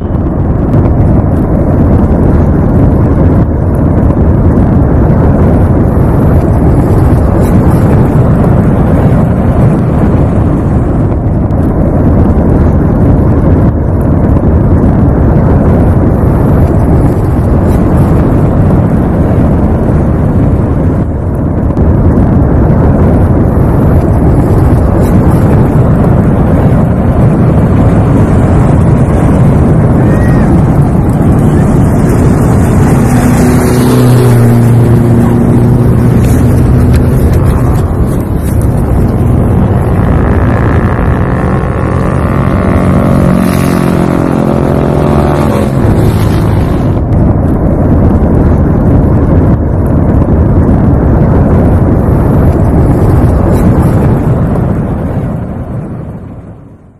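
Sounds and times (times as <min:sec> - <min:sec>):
steady hum: 0:00.0 - 0:56.0
volcano rumbling: 0:00.0 - 0:56.9
wavering drone: 0:23.2 - 0:48.1.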